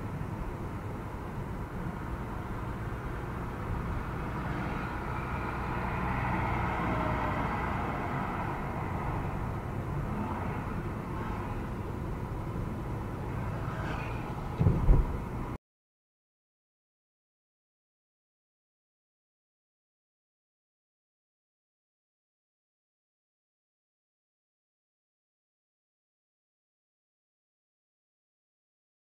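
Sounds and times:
car engine and road rumble: 0.0 - 15.6
loud thump: 14.6 - 15.2.

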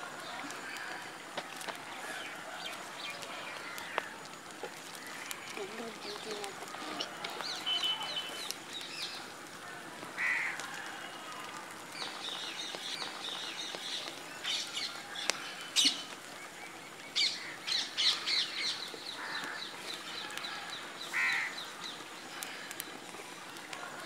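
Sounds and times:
small birds chirping: 0.2 - 23.8
crow cawing: 10.2 - 11.0, 19.1 - 21.6.

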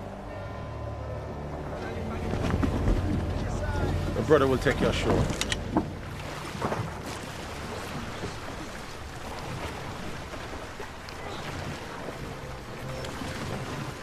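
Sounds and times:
wind: 0.0 - 14.0
choppy sea water washing: 1.4 - 14.0.

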